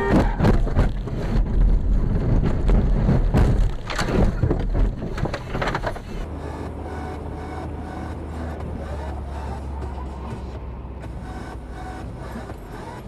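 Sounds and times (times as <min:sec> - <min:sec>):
car crashing with heavy bangs: 0:00.0 - 0:06.0
loud rumble: 0:00.0 - 0:13.0.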